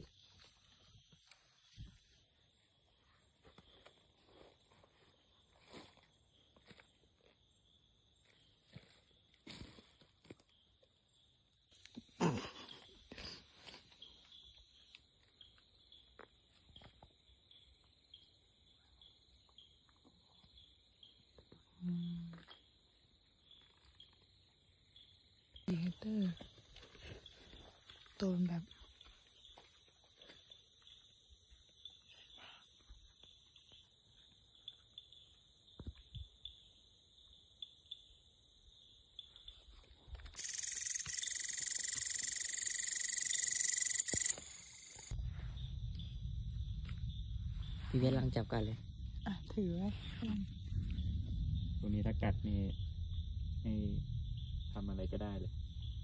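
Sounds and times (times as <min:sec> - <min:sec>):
cricket chirping: 0:00.0 - 0:56.0
night insect chorus: 0:00.0 - 0:56.0
high hiss of insects: 0:30.3 - 0:56.0
loud shrill buzzing insect call: 0:40.3 - 0:45.2.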